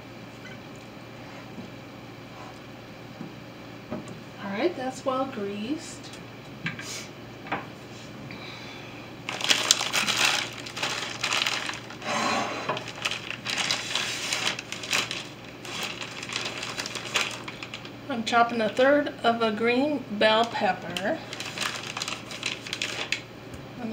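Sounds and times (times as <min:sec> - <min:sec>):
plastic bags crinkling: 0:09.2 - 0:18.9, 0:20.4 - 0:23.3.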